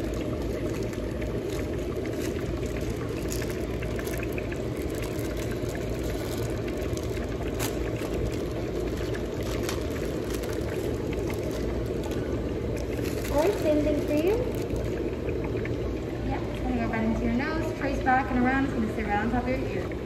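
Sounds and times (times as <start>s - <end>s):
oxygen bubbling through water: 0.0s - 20.0s.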